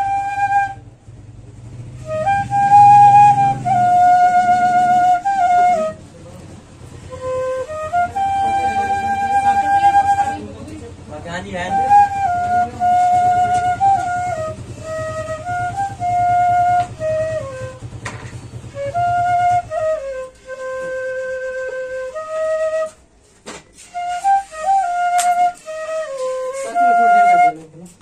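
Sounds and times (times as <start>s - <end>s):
bamboo flute melody: 0.0s - 28.0s.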